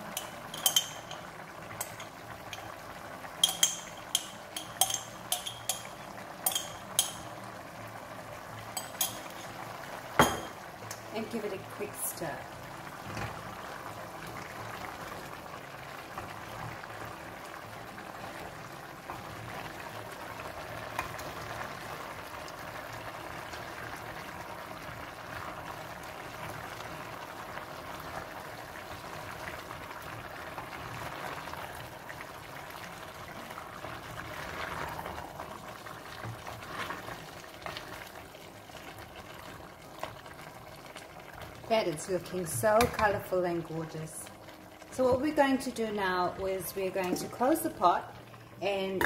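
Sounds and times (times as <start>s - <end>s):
food bubbling in pot: 0.0s - 49.0s
spoon knocking against pot: 0.2s - 2.7s, 3.4s - 7.3s, 10.2s - 10.6s.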